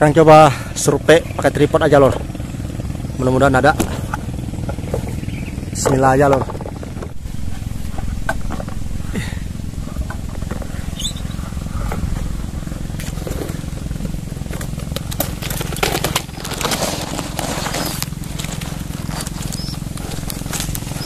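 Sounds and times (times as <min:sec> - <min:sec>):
low rumble: 0:00.0 - 0:21.0
twigs scraping against camera: 0:10.0 - 0:21.0.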